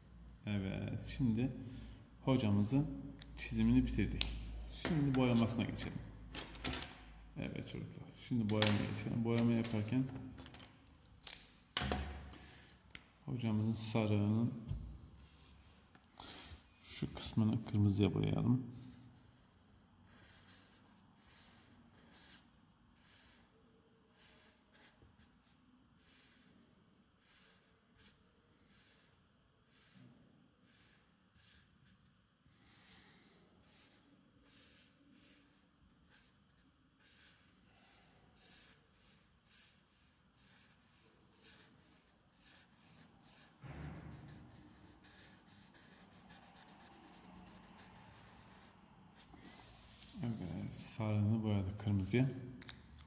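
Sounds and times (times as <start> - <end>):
marker scratching on paper: 18.8 - 32.2, 33.6 - 50.7.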